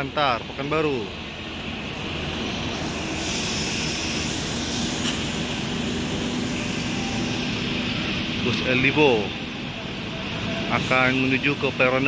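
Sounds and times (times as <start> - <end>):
bus diesel engine droning: 0.0 - 12.0
hiss: 2.9 - 7.4.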